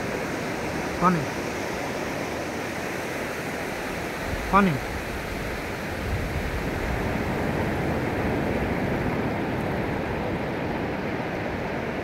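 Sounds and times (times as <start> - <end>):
surf on a beach: 0.0 - 12.0
wind on microphone: 3.6 - 12.0.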